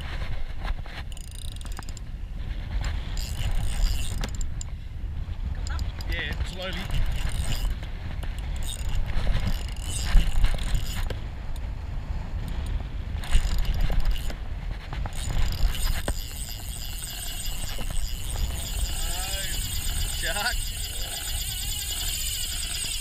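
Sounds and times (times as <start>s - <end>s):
fishing reel whirring and clicking: 1.0s - 2.1s, 3.0s - 4.7s, 5.6s - 11.2s, 12.5s - 14.4s, 15.1s - 23.0s.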